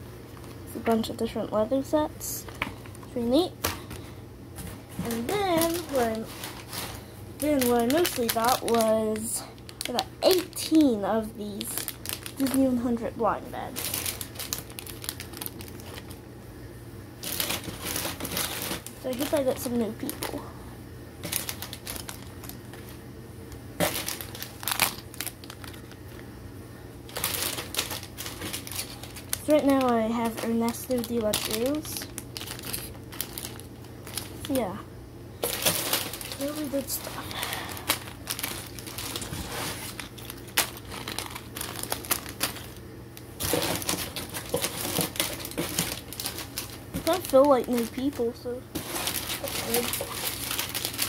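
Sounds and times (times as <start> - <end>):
foil bags crinkling: 0.2 - 16.3, 17.2 - 26.4, 27.0 - 34.8, 35.4 - 51.0.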